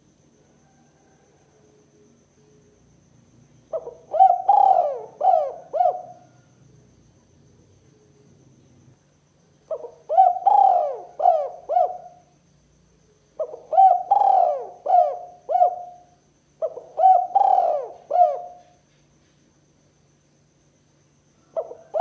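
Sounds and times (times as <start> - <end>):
dove cooing: 3.7 - 6.8, 9.7 - 12.3, 13.4 - 18.8, 21.5 - 22.0.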